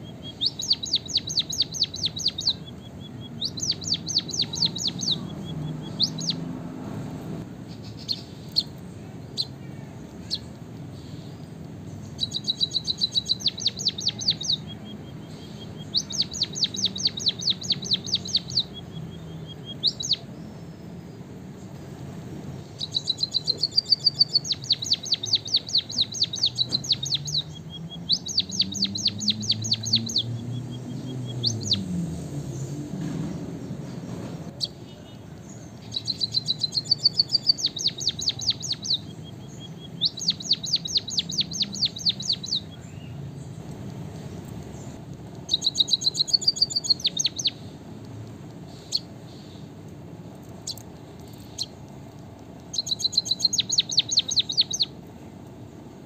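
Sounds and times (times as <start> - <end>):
bird rapid clicking song: 0.0 - 6.5, 7.6 - 21.8, 22.5 - 55.6
thin bird whistle: 0.0 - 6.5, 12.1 - 21.2, 22.6 - 31.8, 34.6 - 43.1, 45.5 - 47.6, 52.7 - 54.9.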